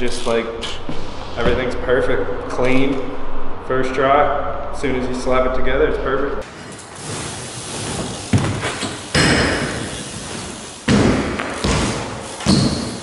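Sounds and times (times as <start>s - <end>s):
bike tyres rolling on wood: 6.4s - 13.0s
bike thumping on ramp: 7.0s - 13.0s.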